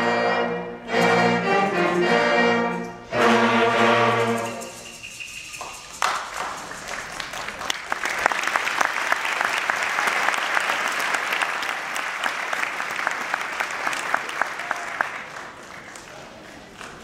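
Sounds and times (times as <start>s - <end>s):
audience applause: 5.5s - 17.0s.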